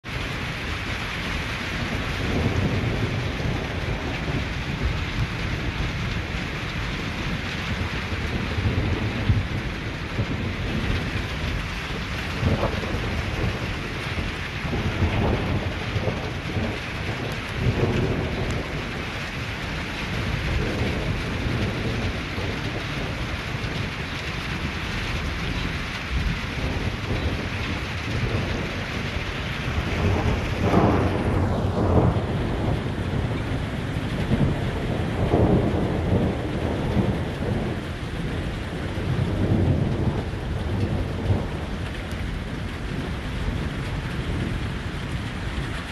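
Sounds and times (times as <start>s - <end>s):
steady rain: 0.0s - 45.9s
thunder rumbling: 0.1s - 45.9s.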